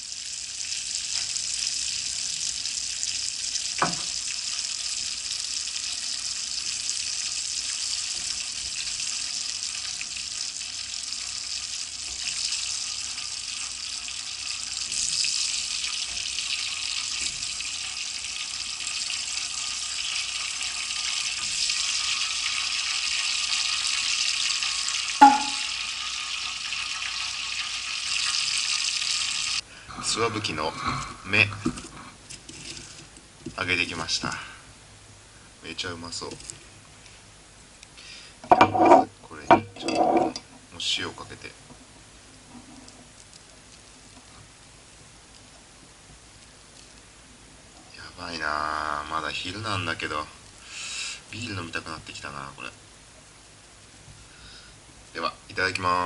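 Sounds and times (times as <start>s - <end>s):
oil sizzling while deep-frying: 0.0s - 30.7s, 32.2s - 56.0s
metal clinks: 25.2s - 25.7s.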